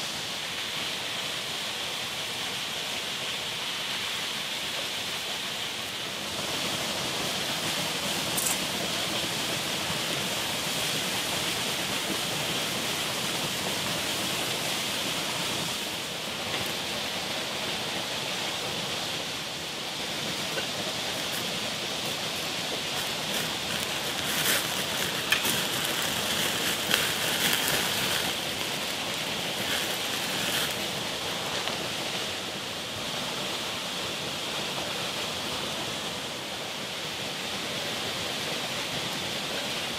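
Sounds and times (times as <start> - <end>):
wood fire hissing: 0.0 - 39.9
fire crackling and popping: 6.5 - 17.8, 19.6 - 32.0.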